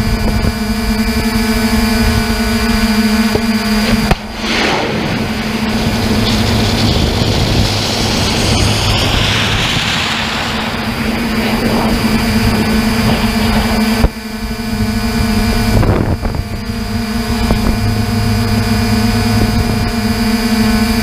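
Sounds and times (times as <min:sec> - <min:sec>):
drone propeller hum: 0:00.0 - 0:21.0
hissing rush: 0:03.6 - 0:14.6.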